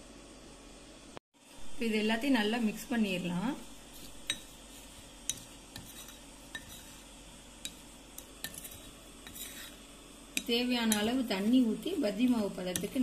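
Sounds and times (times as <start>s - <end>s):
spoon scraping dry mix in bowl: 3.8s - 13.0s.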